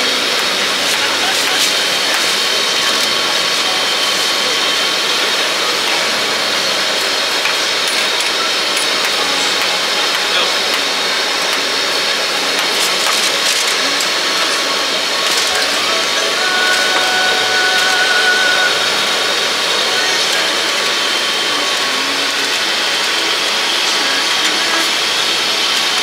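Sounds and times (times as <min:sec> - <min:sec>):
background voices: 0:00.0 - 0:26.0
food stall rushing hiss: 0:00.0 - 0:26.0.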